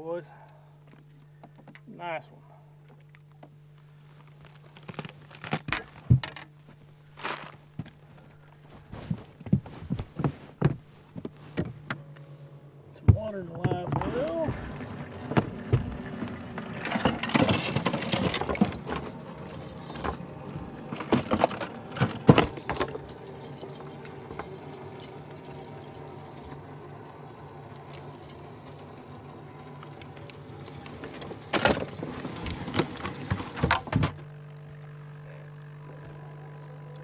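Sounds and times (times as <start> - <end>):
low steady hum: 0.0 - 37.0
gear clattering and knocking: 13.1 - 34.2.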